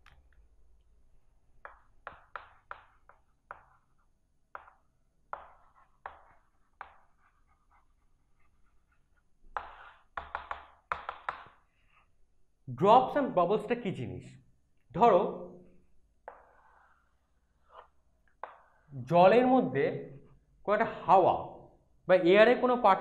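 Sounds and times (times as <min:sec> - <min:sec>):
chalk tapping and scratching: 0:01.6 - 0:12.1, 0:16.2 - 0:18.9.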